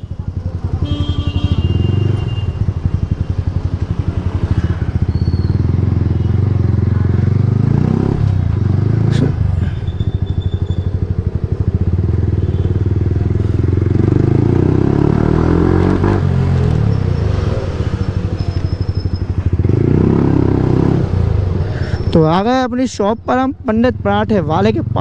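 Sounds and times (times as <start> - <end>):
motorcycle engine running: 0.0 - 22.6.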